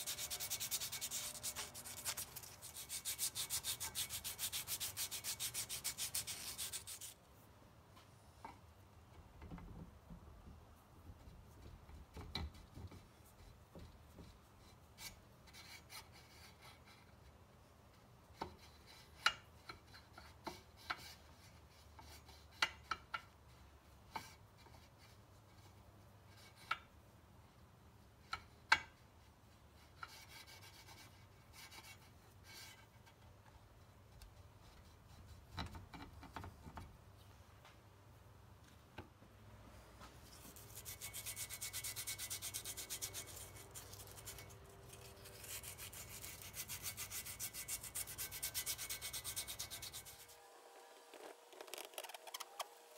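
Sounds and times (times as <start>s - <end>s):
metal-on-metal scraping: 0.0s - 7.1s.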